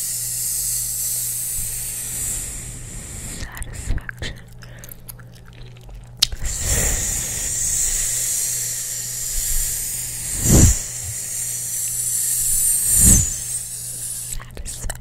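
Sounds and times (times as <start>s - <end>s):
steady hiss: 6.5s - 14.4s
low rush of air: 9.6s - 11.5s.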